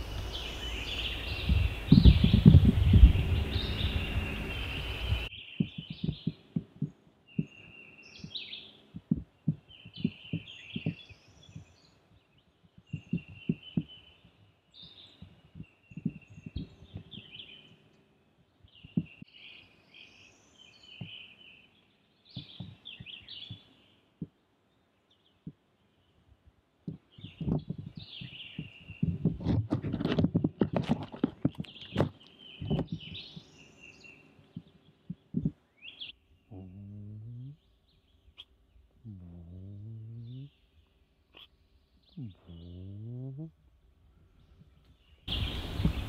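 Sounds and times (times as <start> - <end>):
loud low rumble: 0.0 - 5.3
songbirds singing: 0.0 - 46.0
soft low thumps: 1.2 - 11.9, 12.6 - 14.5, 15.1 - 17.4, 18.7 - 19.3, 26.8 - 33.6, 34.4 - 35.7, 36.5 - 37.6, 39.0 - 40.5.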